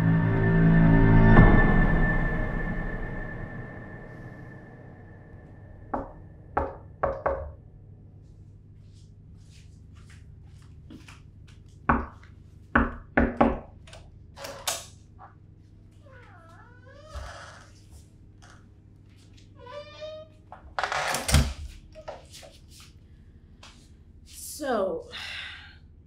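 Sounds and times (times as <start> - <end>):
knocking on wooden door: 6.0 - 7.6, 11.9 - 13.7.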